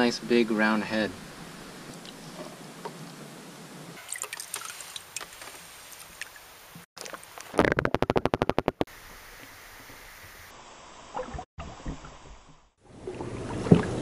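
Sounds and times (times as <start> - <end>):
water dripping and trickling: 4.0 - 6.9.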